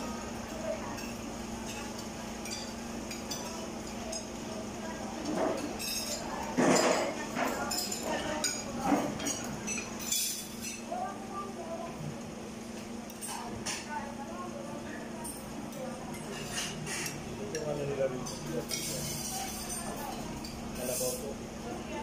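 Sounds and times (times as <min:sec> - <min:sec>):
cutlery clinking on plates: 0:05.2 - 0:10.9, 0:16.1 - 0:21.2.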